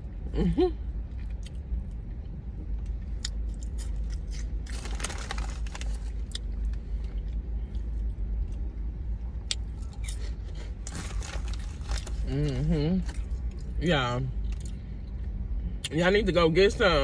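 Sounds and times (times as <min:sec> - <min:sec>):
steady low hum: 0:00.0 - 0:17.0
crunchy chewing: 0:01.1 - 0:08.7
plastic snack bag crinkling: 0:04.3 - 0:06.4, 0:10.8 - 0:12.4.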